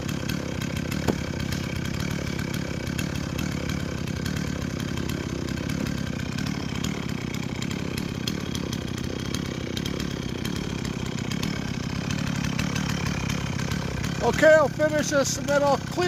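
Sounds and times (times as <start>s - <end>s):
chainsaw running: 0.0s - 16.0s.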